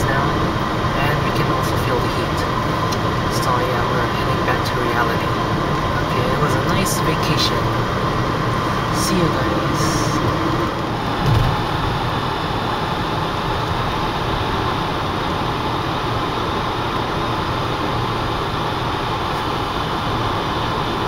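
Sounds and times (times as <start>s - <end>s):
car road noise at highway speed: 0.0s - 21.0s
low thump: 11.2s - 11.6s.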